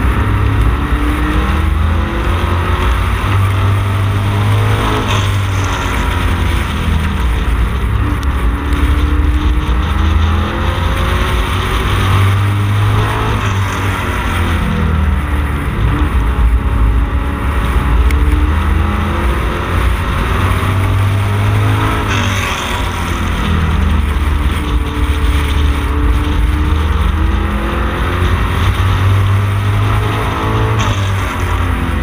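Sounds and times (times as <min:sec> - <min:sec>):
race car engine at speed: 0:00.0 - 0:32.0.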